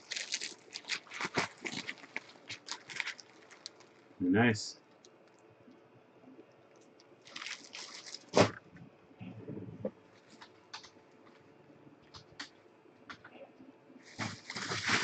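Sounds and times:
plastic packaging crinkling: 0:00.0 - 0:04.1, 0:07.2 - 0:08.6, 0:14.0 - 0:15.0.

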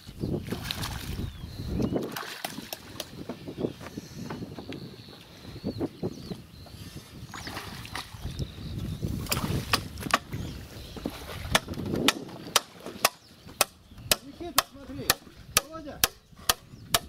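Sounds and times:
hand tool striking wood: 0:09.7 - 0:10.3, 0:11.5 - 0:17.0.

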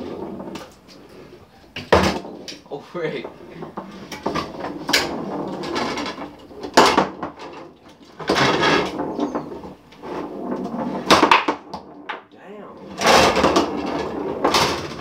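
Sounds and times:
foosball rods sliding and rattling: 0:00.0 - 0:15.0
plastic players striking ball: 0:10.9 - 0:12.3.

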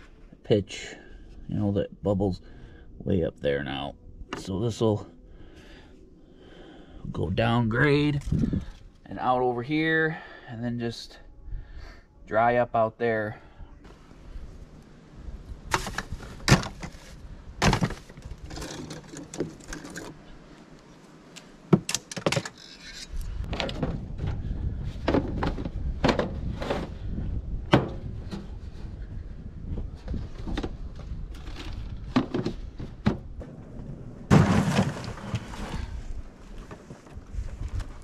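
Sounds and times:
steady low rumble: 0:00.0 - 0:10.3, 0:23.2 - 0:34.3.

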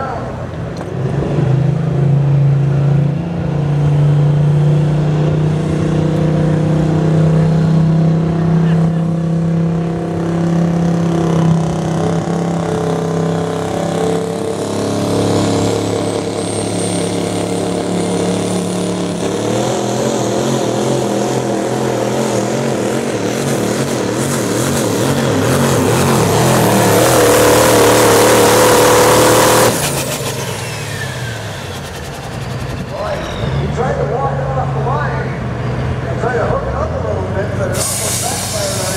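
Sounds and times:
diesel engine under full load: 0:00.0 - 0:38.9
turbo whistle: 0:32.9 - 0:33.7.

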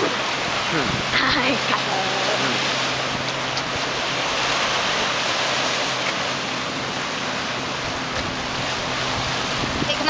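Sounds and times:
ocean surf breaking over rocks: 0:00.0 - 0:10.0.

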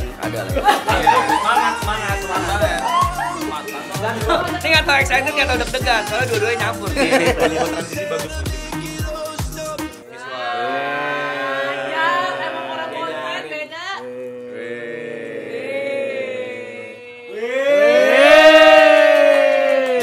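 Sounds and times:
held chords music: 0:00.0 - 0:10.1.

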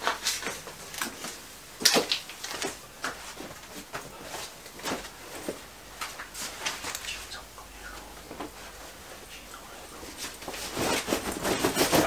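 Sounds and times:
fabric rustling: 0:10.0 - 0:12.0.

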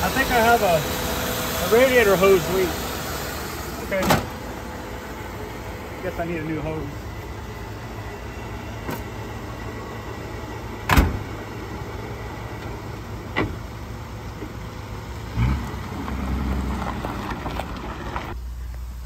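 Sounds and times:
car engine idling: 0:00.0 - 0:19.0
car door slamming: 0:04.0 - 0:04.4, 0:10.8 - 0:11.4, 0:12.6 - 0:13.6.

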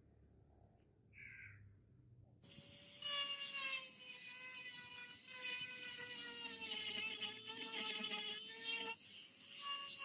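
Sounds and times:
rotary tool high whine: 0:02.4 - 0:10.0.

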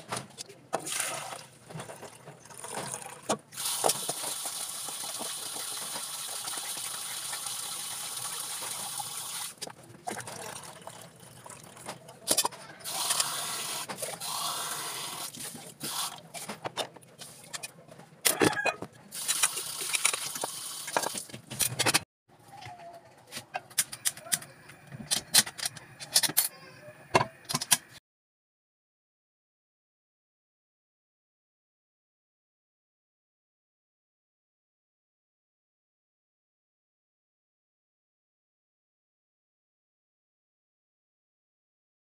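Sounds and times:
rinse water poured off: 0:00.8 - 0:12.0
tap water running into metal pot: 0:02.6 - 0:11.9.

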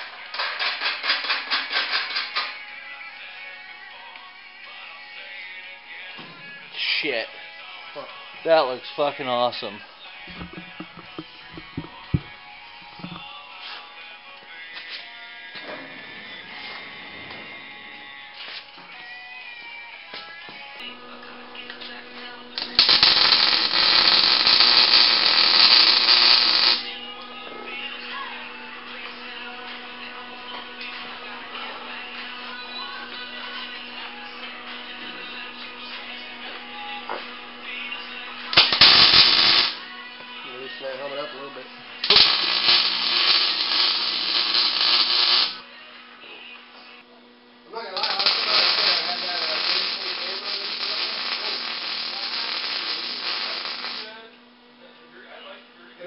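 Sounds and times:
welder arc crackling: 0:00.0 - 0:02.6, 0:10.2 - 0:13.3, 0:21.7 - 0:27.0, 0:38.5 - 0:39.8, 0:42.0 - 0:45.6, 0:47.9 - 0:54.2
background music: 0:00.0 - 0:47.1, 0:48.0 - 0:54.1
angle grinder grinding steel: 0:10.3 - 0:13.3.

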